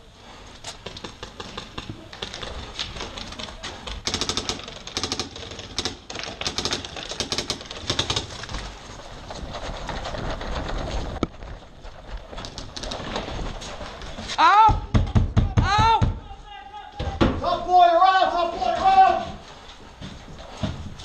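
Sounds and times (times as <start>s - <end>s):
paintball markers firing: 0.7s - 8.6s.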